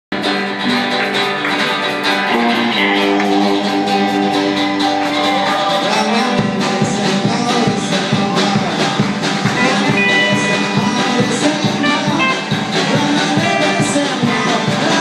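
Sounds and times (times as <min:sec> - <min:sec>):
folk-rock band playing: 0:00.1 - 0:15.0
strummed acoustic guitar: 0:00.1 - 0:15.0.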